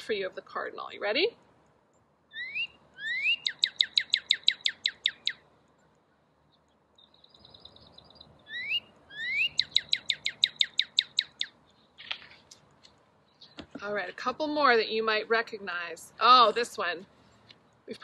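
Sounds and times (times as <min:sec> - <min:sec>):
birdsong from small speaker: 0:02.3 - 0:12.3, 0:13.2 - 0:13.8.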